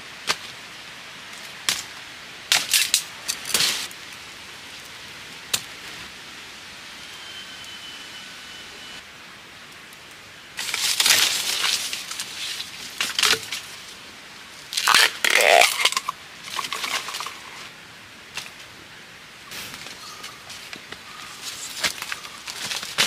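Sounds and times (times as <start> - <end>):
dry bamboo crunching and crackling: 1.3 - 3.9, 10.6 - 14.0, 14.6 - 17.7, 19.7 - 23.0.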